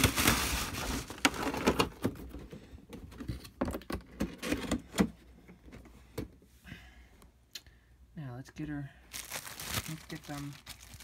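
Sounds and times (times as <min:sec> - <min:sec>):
plastic bags rustling: 0:00.0 - 0:02.1, 0:09.1 - 0:11.0.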